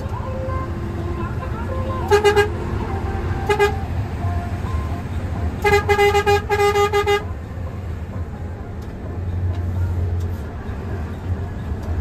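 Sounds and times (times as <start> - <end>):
bus engine rumble: 0.0 - 12.0
bus horn toots: 1.6 - 7.4.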